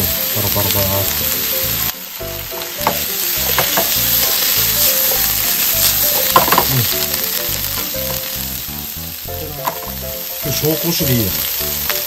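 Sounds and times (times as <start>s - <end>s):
bamboo shoots sizzling in oil: 0.0s - 12.0s
chopsticks clattering in pan: 2.6s - 8.3s, 9.6s - 10.0s.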